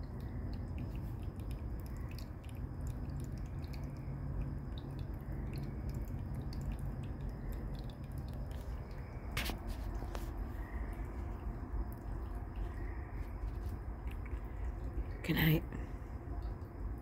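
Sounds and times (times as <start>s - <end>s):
faint high insect trill: 0.0s - 17.0s
steady low rumble: 0.0s - 17.0s.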